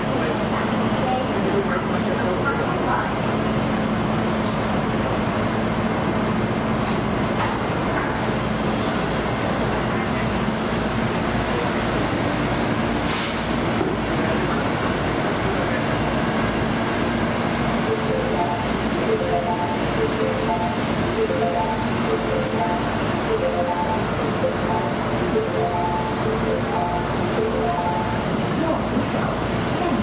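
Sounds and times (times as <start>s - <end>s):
train hum and rumble: 0.0s - 30.0s
stepped tone tune: 17.0s - 29.2s.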